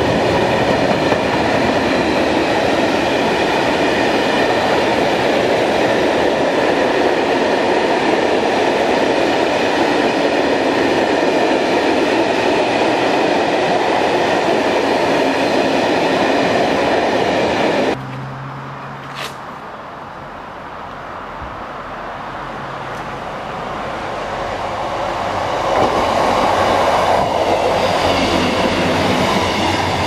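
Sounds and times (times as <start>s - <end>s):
freight train wheels rumbling: 0.0s - 18.0s, 22.9s - 30.0s.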